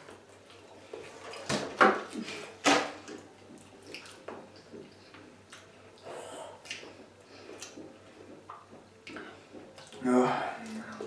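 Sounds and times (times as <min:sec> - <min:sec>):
chewing: 0:03.0 - 0:11.0.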